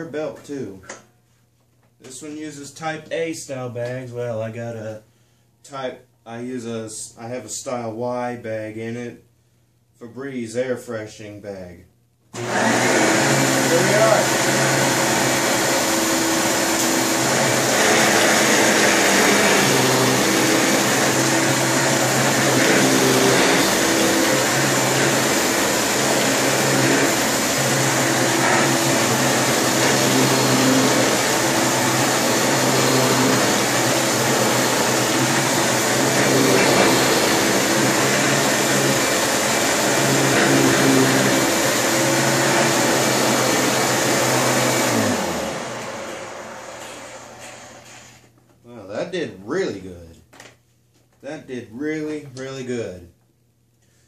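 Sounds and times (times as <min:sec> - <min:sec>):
vacuum cleaner running: 0:12.4 - 0:48.3.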